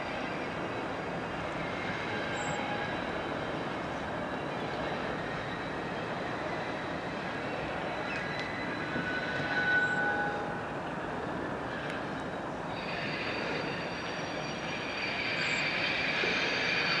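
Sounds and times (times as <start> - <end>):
diesel locomotive engine rumble: 0.0 - 17.0
high-pitched wheel squeal: 1.6 - 3.4, 4.3 - 10.8, 12.7 - 17.0.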